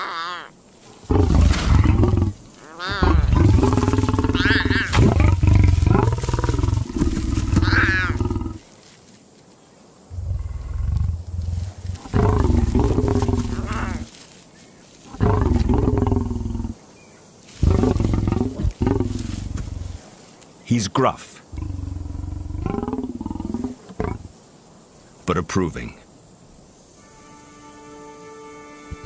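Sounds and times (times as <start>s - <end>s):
lion growling: 1.0s - 8.6s, 10.1s - 14.1s, 15.1s - 16.8s, 17.6s - 20.0s, 21.5s - 24.3s.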